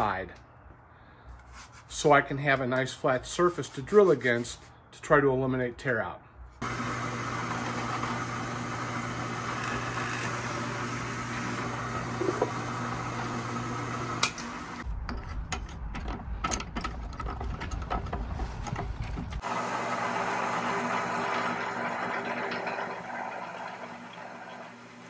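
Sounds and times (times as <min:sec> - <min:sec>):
drill bit drilling wood: 0:06.6 - 0:14.8, 0:19.4 - 0:25.0
drill press motor running: 0:06.6 - 0:14.8, 0:19.4 - 0:25.0
metallic clicks and knocks: 0:15.0 - 0:19.4.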